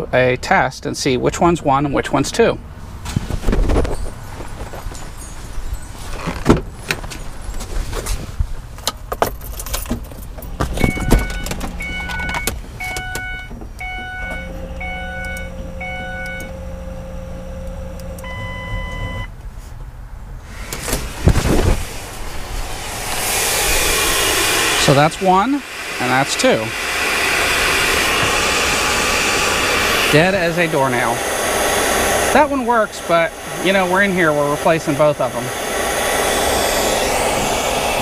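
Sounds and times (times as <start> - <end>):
car door and keys handling: 8.8 - 14.5
steady hum: 10.4 - 19.3, 20.3 - 38.0
car warning chime beeping: 10.5 - 19.3
long tone: 13.0 - 16.6.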